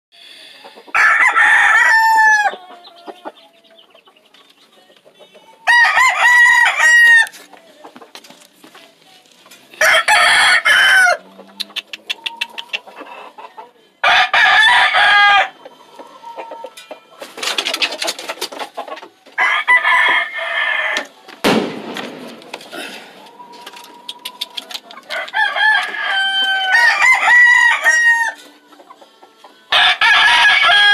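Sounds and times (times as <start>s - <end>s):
roosters crowing: 0.8s - 3.6s, 5.4s - 7.4s, 9.7s - 11.6s, 14.0s - 17.4s, 19.4s - 21.2s, 22.7s - 30.9s.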